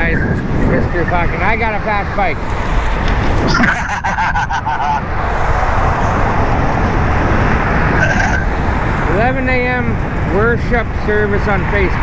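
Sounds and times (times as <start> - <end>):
passing traffic road noise: 0.0 - 12.0
wind rushing over microphone: 0.0 - 12.0.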